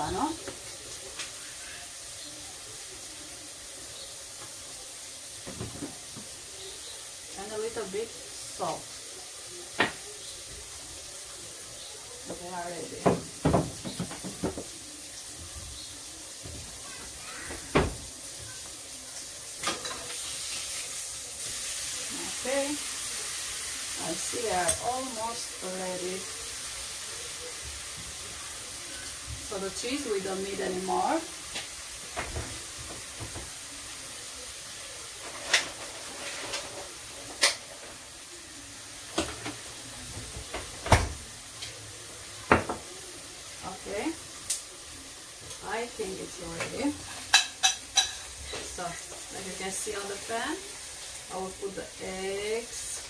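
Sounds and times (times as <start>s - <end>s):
food sizzling in a pan: 0.0s - 53.0s
kitchen items knocking and clicking: 5.4s - 6.3s, 13.0s - 14.8s, 39.1s - 41.2s, 42.5s - 42.9s.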